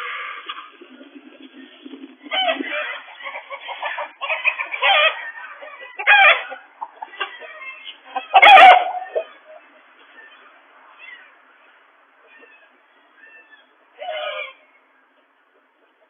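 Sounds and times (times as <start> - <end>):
chickens squawking: 0.0 - 15.0.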